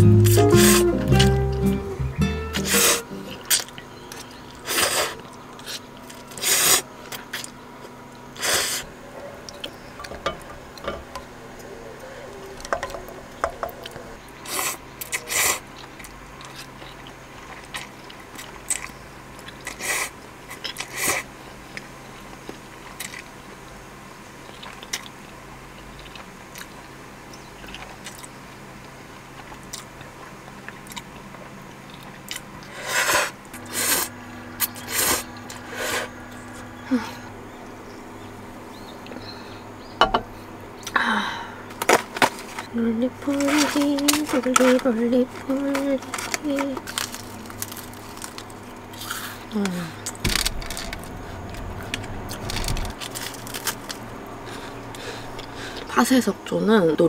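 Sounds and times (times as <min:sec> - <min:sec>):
faint steady hum: 0:00.0 - 0:57.0
person chewing: 0:13.7 - 0:21.9, 0:24.4 - 0:26.8, 0:27.6 - 0:28.4, 0:29.3 - 0:36.2
person slurping noodles: 0:32.7 - 0:34.1.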